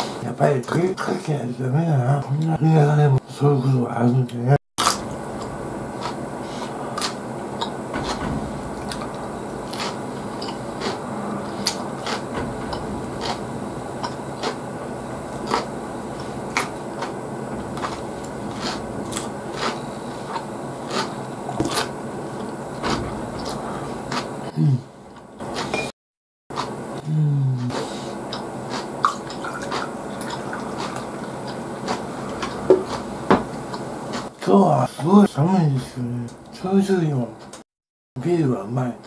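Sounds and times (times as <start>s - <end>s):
chewing crunches: 28.3s - 33.1s.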